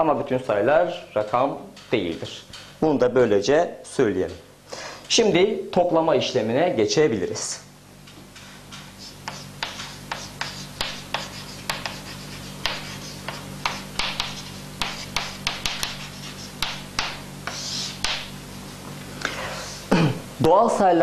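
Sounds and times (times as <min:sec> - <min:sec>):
chalk scratching on chalkboard: 0:08.8 - 0:18.8.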